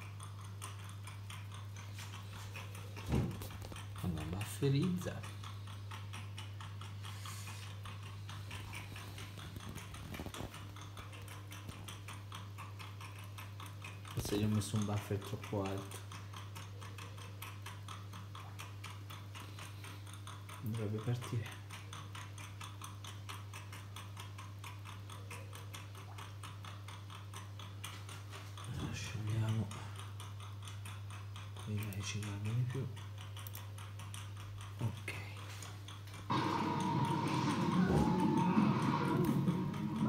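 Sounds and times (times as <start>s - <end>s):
hard drive ticking: 0.0s - 40.0s
low electrical hum: 0.0s - 40.0s
low hum: 36.3s - 40.0s.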